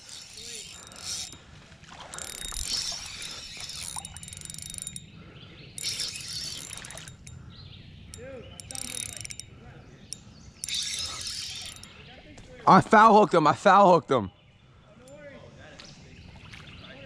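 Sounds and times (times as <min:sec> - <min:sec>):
fishing reel whirring: 0:00.0 - 0:07.4, 0:08.1 - 0:09.5, 0:10.1 - 0:11.9.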